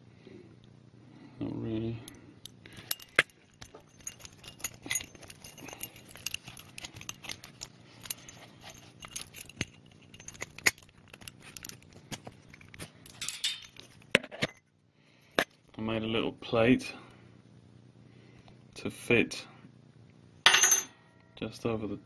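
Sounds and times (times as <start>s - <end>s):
keys jangling: 2.5s - 14.1s.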